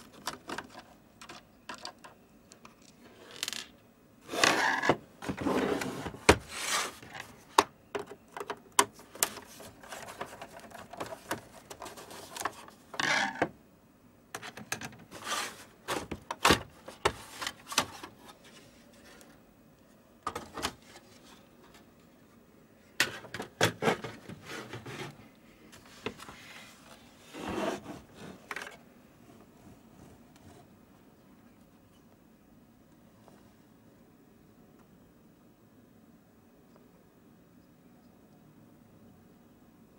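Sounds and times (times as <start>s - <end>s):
scraping or rubbing: 4.3s - 7.3s, 15.1s - 15.8s, 23.7s - 25.2s, 26.3s - 28.5s.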